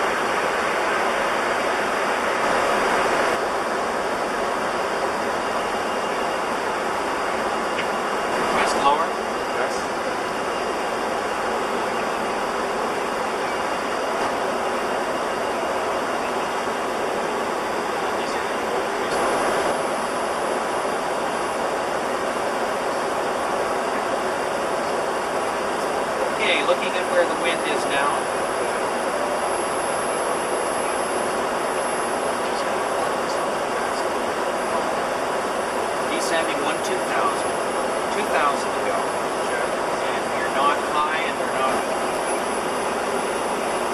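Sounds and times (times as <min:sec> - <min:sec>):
aircraft cockpit rushing noise: 0:00.0 - 0:43.9.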